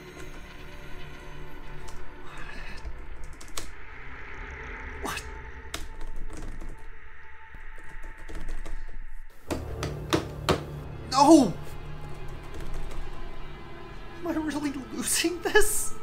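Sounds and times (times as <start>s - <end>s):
computer keyboard typing: 2.8s - 3.7s, 5.7s - 6.9s, 7.8s - 8.8s, 12.1s - 13.0s.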